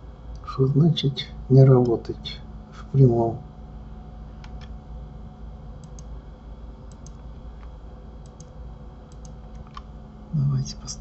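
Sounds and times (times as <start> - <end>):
low steady hum: 0.0 - 11.0
computer mouse clicking: 4.4 - 4.7, 5.8 - 6.1, 6.8 - 9.9.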